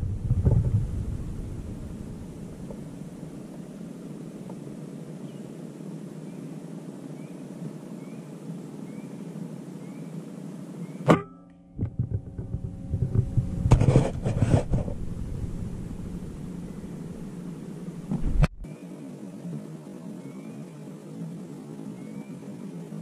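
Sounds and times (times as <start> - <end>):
rustling and knocks: 0.0 - 2.9, 11.1 - 17.3, 18.0 - 18.6
low background hum: 0.0 - 23.0
faint bird chirps: 5.2 - 5.6, 6.2 - 11.1, 16.5 - 17.5, 20.0 - 21.0, 21.8 - 22.6.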